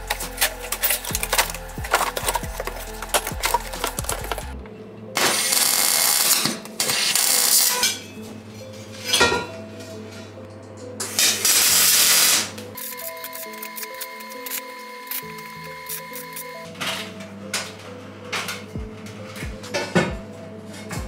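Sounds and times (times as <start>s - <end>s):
welder arc crackling and hissing: 0.0s - 4.6s, 5.2s - 7.8s, 11.0s - 17.3s.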